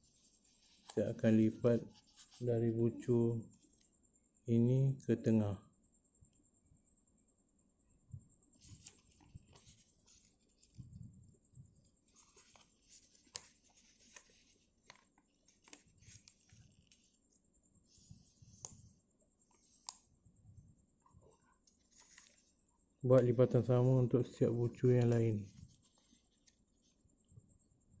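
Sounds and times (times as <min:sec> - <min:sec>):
paper rustling and crinkling: 0:00.0 - 0:02.4, 0:08.6 - 0:11.1, 0:11.8 - 0:20.0, 0:21.7 - 0:22.6, 0:24.9 - 0:27.0
sharp ticks of paper creasing: 0:08.6 - 0:10.8, 0:11.8 - 0:20.1, 0:21.7 - 0:22.6.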